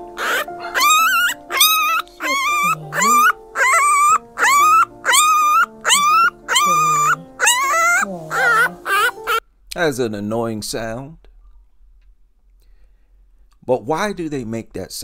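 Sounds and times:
puppy crying: 0.0 - 9.4.

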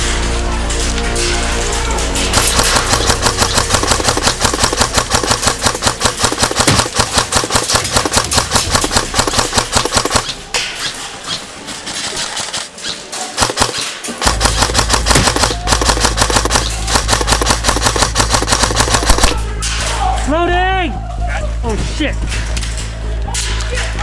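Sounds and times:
airsoft gun firing full-auto: 2.4 - 10.3, 13.4 - 19.4.

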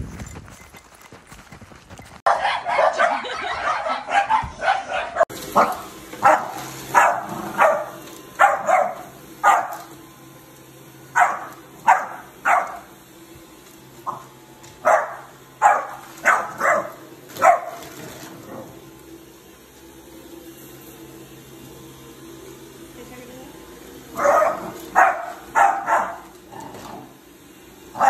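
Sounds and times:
puppy barking: 2.3 - 9.9, 11.1 - 12.9, 14.0 - 17.9, 24.2 - 26.3.

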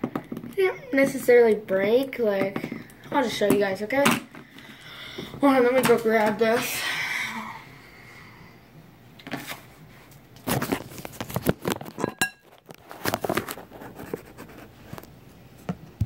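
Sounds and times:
knocks scrapes and rustles of handling: 9.2 - 15.2.

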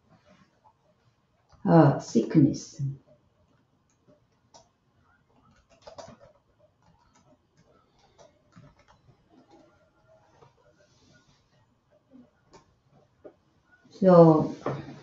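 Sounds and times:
keyboard keys clicking: 5.4 - 9.7.

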